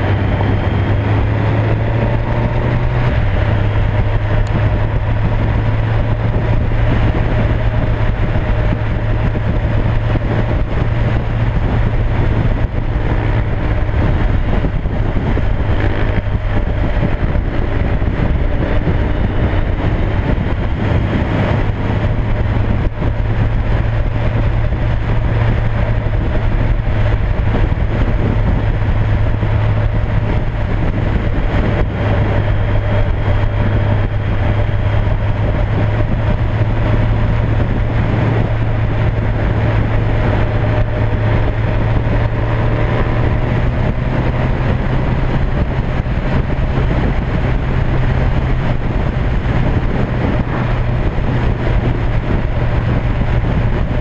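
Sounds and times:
motorcycle engines cruising: 0.0s - 54.0s
wind rush: 0.0s - 54.0s.

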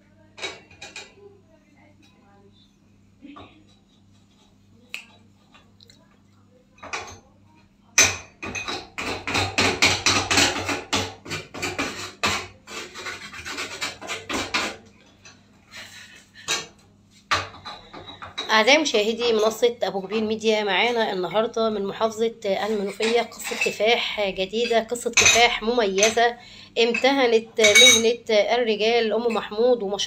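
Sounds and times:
metal rasping strokes: 11.6s - 14.8s.

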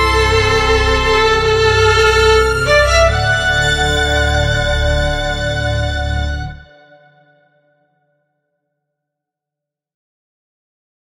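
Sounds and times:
background music held note: 0.0s - 7.6s.

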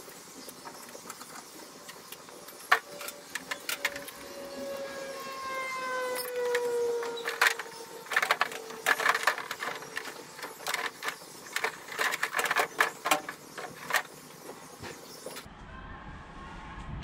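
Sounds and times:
gas tubing clicking and rattling: 6.4s - 14.5s.

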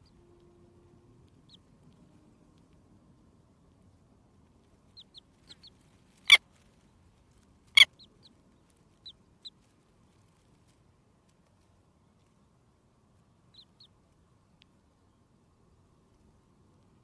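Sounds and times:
chicks peeping: 1.2s - 2.8s, 4.5s - 10.5s, 13.4s - 14.0s.

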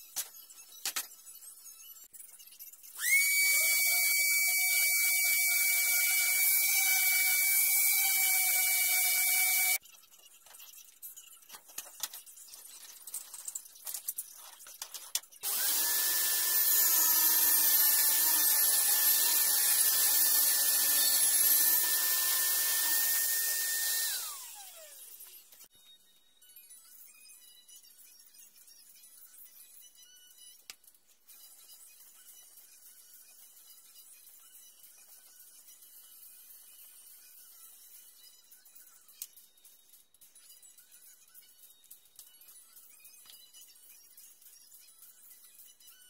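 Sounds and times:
orbit sander whining: 3.0s - 9.8s, 15.4s - 25.0s.

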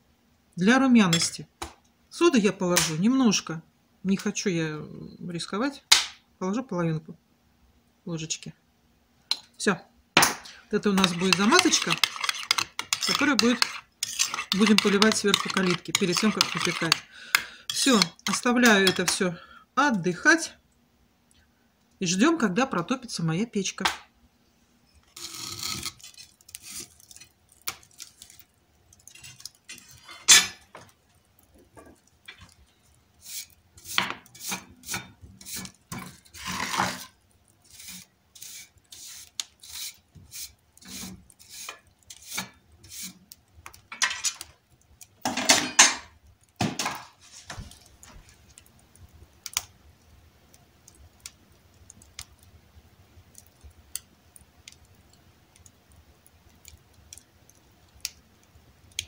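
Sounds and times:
wood fire crackling: 0.0s - 7.2s, 7.8s - 59.0s
fire pops: 5.9s - 6.2s, 46.5s - 52.6s
objects clattering and scraping: 10.4s - 17.1s, 29.0s - 32.8s, 33.8s - 37.2s, 45.2s - 48.5s.

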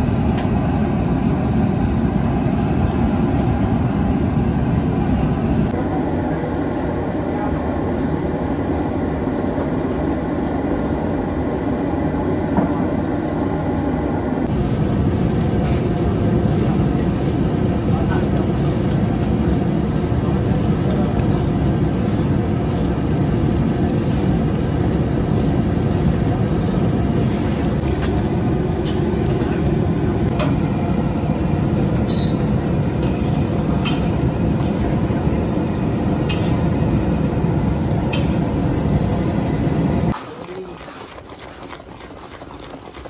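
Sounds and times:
gas burner rumble: 0.0s - 40.2s
syrup bubbling hard: 40.1s - 43.0s.

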